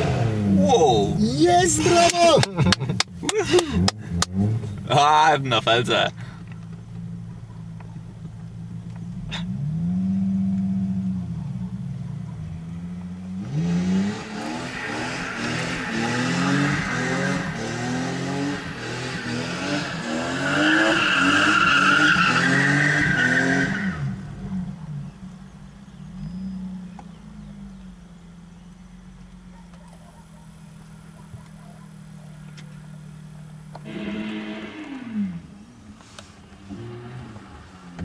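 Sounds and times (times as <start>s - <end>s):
car engine revving: 0.0s - 29.5s, 30.6s - 38.0s
tyres squealing: 14.2s - 24.0s.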